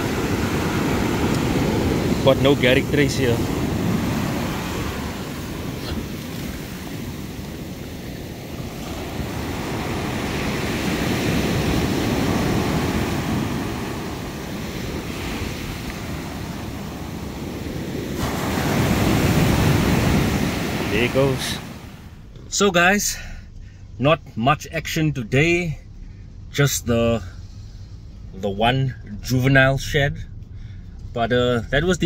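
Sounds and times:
ocean surf breaking on beach: 0.0 - 22.2.

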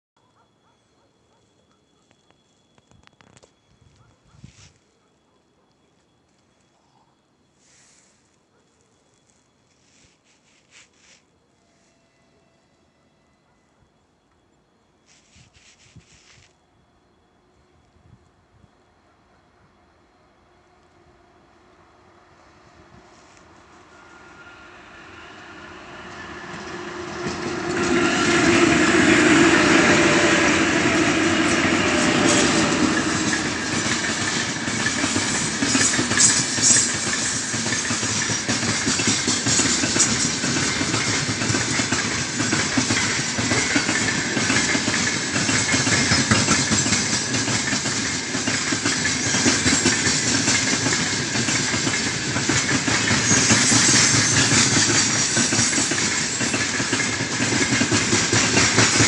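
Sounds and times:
electric locomotives passing: 0.2 - 59.0
train wagons rumbling: 22.9 - 59.0
wheels clacking over rail joints: 26.0 - 59.0.

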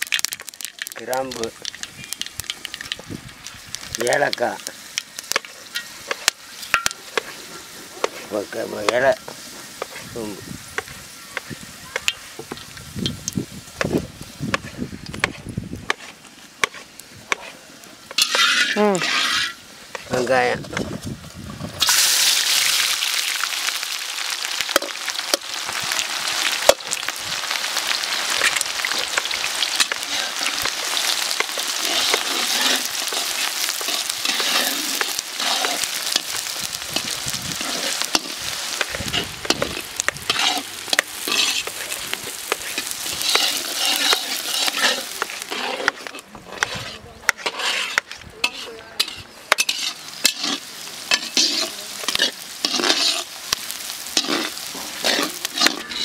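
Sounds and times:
onions sizzling in hot oil: 0.0 - 56.0
metal ladle scraping pan: 14.5 - 20.4, 28.4 - 56.0.

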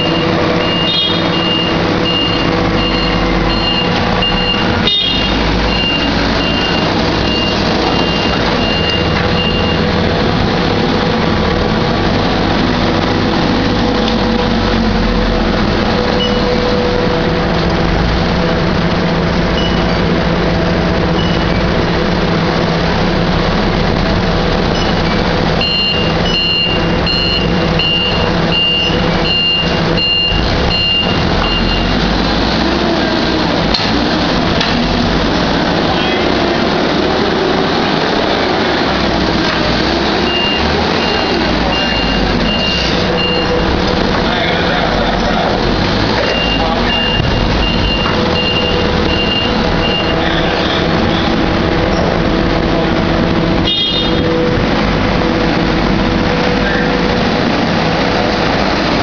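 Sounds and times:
reverse alarm beeping: 0.0 - 9.9, 16.1 - 16.6, 19.6 - 19.9, 21.2 - 21.7, 25.6 - 32.0, 40.2 - 43.8, 46.2 - 51.3
forklift engine humming: 0.0 - 59.0.

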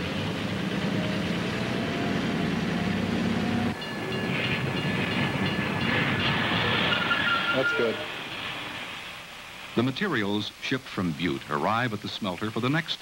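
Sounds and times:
diesel engine low hum: 0.0 - 6.9
railroad car rumbling: 0.0 - 11.6
thin high-pitched tones: 6.8 - 8.1.

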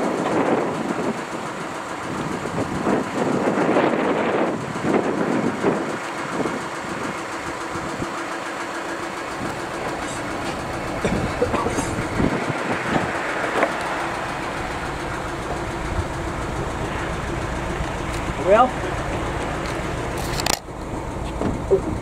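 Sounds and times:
diesel engine idling: 0.0 - 22.0
sharp engine knocks: 9.1 - 22.0.

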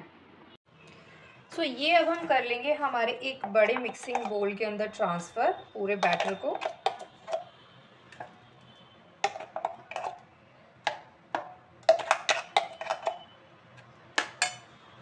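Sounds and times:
metal spoon scraping steel bowl: 3.3 - 4.6, 5.4 - 7.5, 9.2 - 10.2, 11.8 - 13.3, 14.2 - 14.7.

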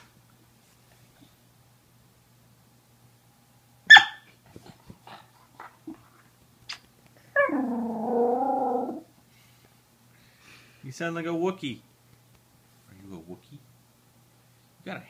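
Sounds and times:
dog barking: 3.9 - 4.3
dog grumbling call: 7.4 - 9.1.

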